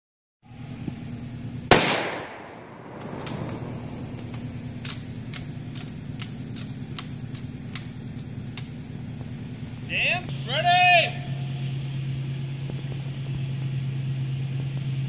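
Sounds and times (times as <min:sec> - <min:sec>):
steady low hum: 0:00.4 - 0:15.0
rifle shot: 0:01.7 - 0:05.0
faint sharp ticks: 0:03.0 - 0:08.8.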